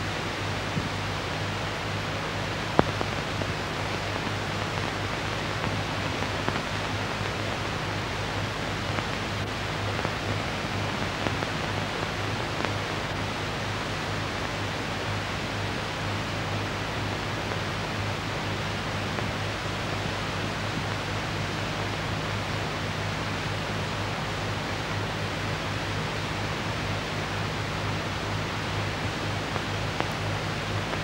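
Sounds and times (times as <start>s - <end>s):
old film soundtrack hiss and hum: 0.0s - 31.0s
faint clicks: 29.5s - 30.2s.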